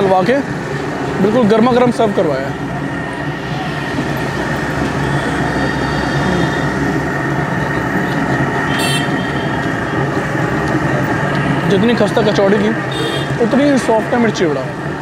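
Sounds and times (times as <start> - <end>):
busy street din: 0.0 - 15.0
high-pitched squeal: 2.1 - 13.0.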